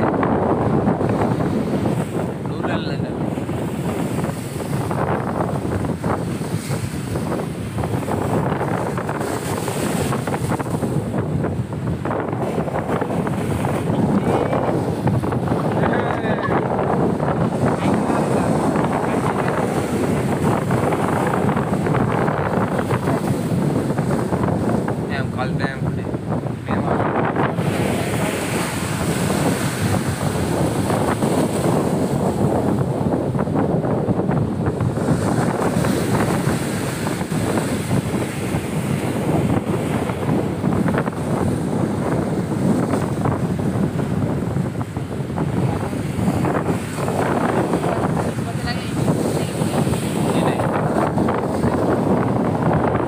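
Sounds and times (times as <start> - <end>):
waves washing against rocks: 0.0 - 53.0
wind buffeting microphone: 0.0 - 53.0.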